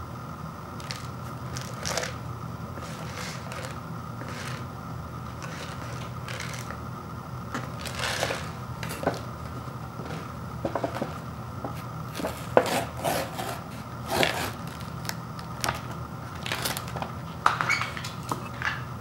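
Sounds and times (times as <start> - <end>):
low background hum: 0.0 - 19.0
paper bowl crinkling: 0.8 - 2.2, 2.8 - 4.7, 5.3 - 6.8, 7.6 - 9.3, 14.2 - 17.2.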